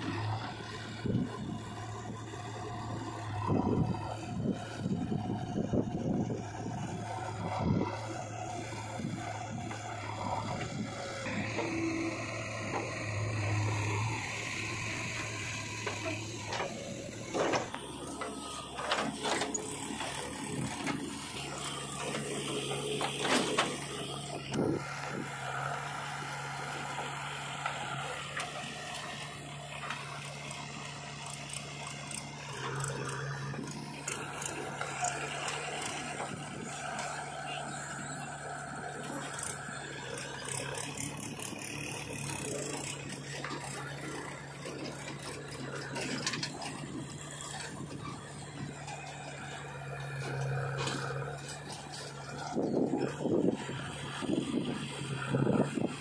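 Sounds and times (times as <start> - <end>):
diesel engines running: 0.0 - 56.0
backhoe clunks and knocks: 7.3 - 13.8, 15.0 - 25.3, 39.2 - 56.0.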